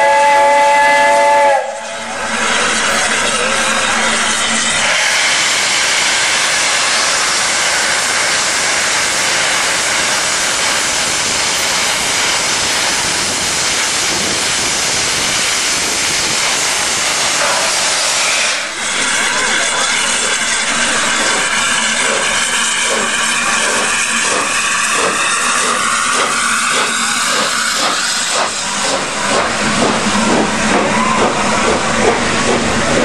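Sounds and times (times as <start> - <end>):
steam locomotive hissing steam: 0.0 - 33.0.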